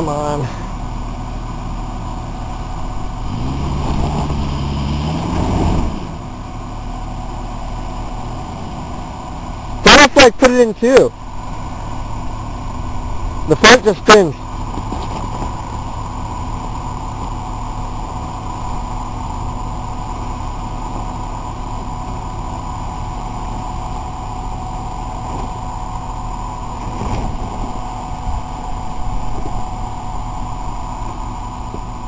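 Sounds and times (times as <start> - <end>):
suv engine straining under load: 0.4 - 9.8, 14.4 - 32.0.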